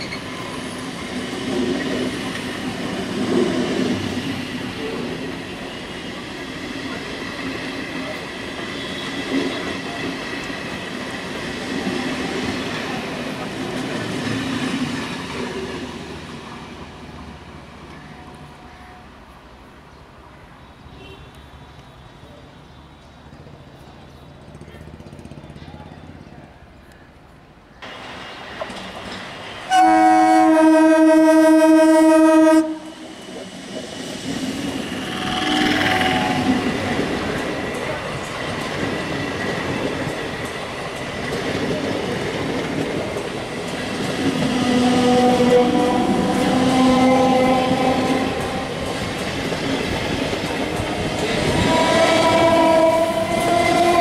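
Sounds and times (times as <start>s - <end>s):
train rolling on rails: 0.0s - 54.0s
train horn blast: 29.7s - 33.0s, 44.5s - 48.8s, 51.5s - 54.0s.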